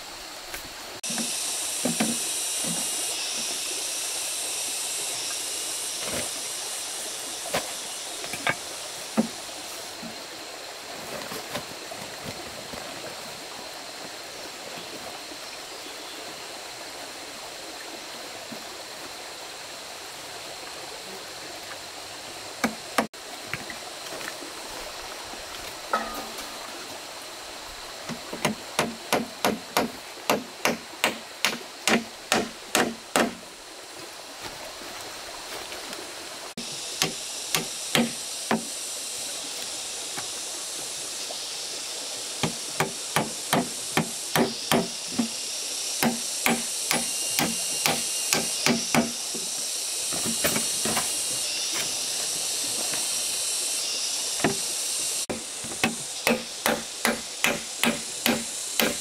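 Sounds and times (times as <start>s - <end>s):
water flowing: 0.0s - 59.0s
hand tool striking wood: 1.0s - 2.8s, 7.5s - 9.4s, 22.6s - 23.1s, 25.9s - 26.4s, 28.1s - 33.4s, 37.0s - 38.7s, 42.4s - 45.3s, 46.0s - 49.4s, 50.1s - 51.2s, 54.4s - 54.6s, 55.3s - 59.0s.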